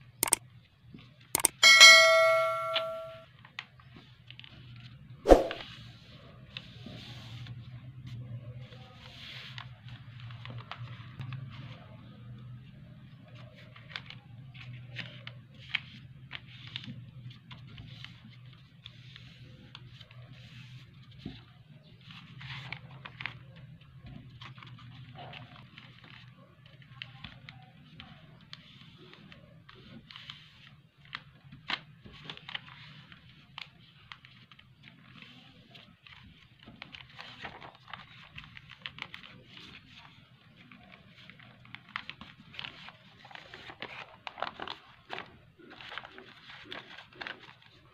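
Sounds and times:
paper rustling and crinkling: 13.3s - 47.9s.

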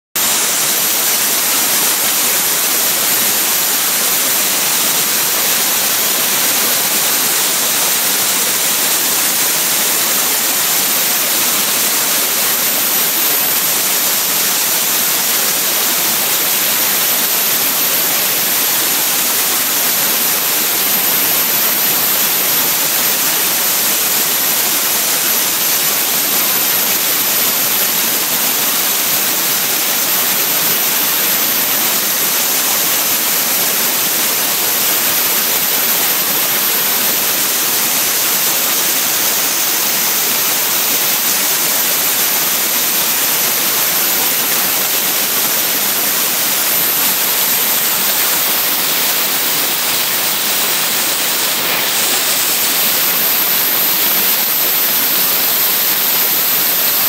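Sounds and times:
dry ice blaster hissing: 0.2s - 57.0s.

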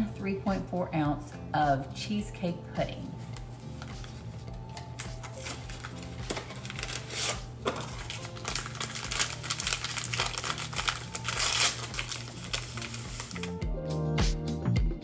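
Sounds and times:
light background music: 0.0s - 15.0s
packet crinkling: 3.4s - 13.6s.

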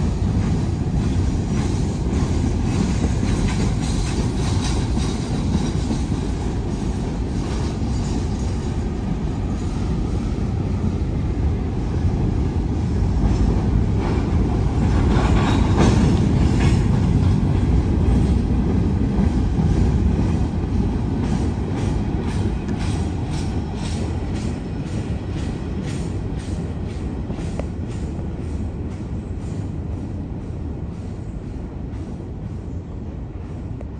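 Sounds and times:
train wheels rumbling on rail: 0.0s - 33.9s
wheels clacking over rail joints: 13.2s - 28.1s.

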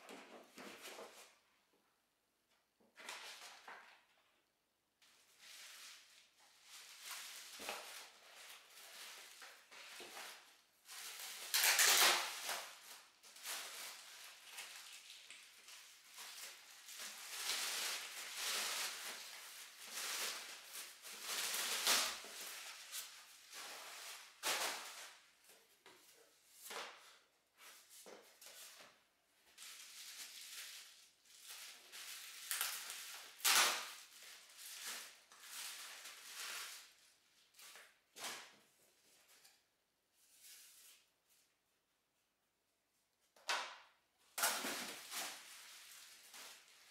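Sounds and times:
plastic film crinkling: 5.1s - 25.3s, 29.5s - 38.0s, 44.4s - 46.9s.

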